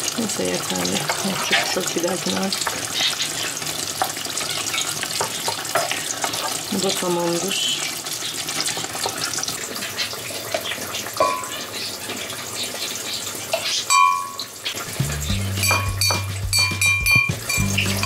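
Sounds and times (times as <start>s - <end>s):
meat sizzling in a frying pan: 0.0s - 16.6s
background music: 14.8s - 18.0s
deep bass notes: 14.9s - 18.0s.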